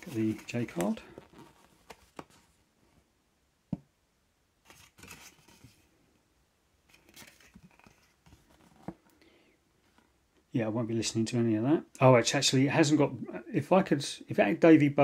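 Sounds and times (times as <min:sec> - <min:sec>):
paper card rustling and crinkling: 0:00.0 - 0:02.6, 0:04.6 - 0:05.9, 0:06.9 - 0:09.1.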